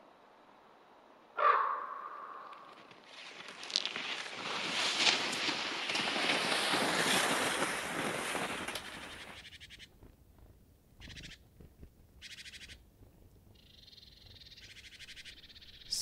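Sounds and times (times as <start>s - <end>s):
skis scraping on crusty snow: 2.8s - 10.3s.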